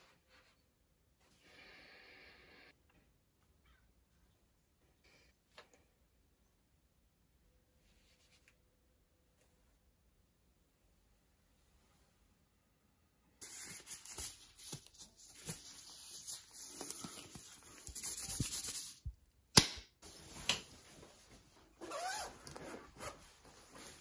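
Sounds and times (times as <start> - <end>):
plastic gloves and clothing rustling: 13.4 - 19.1, 20.0 - 24.0.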